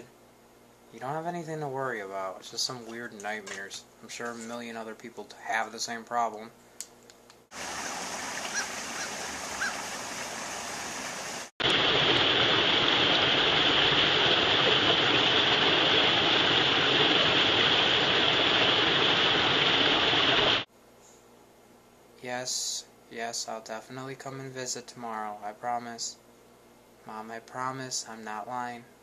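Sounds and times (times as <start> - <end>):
creek water rushing over cascade: 7.5 - 20.7.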